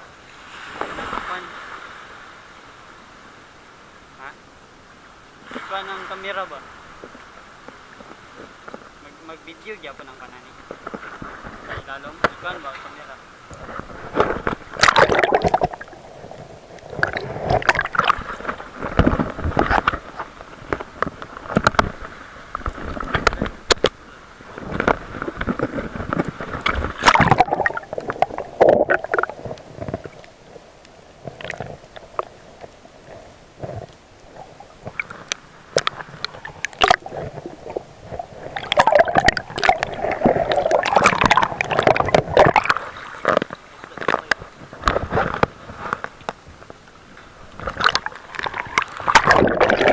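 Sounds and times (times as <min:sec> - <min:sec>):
seawater sloshing and gurgling: 0:13.5 - 0:46.6, 0:47.2 - 0:49.9
sharp clicks and crackles: 0:14.2 - 0:24.0, 0:24.6 - 0:46.8.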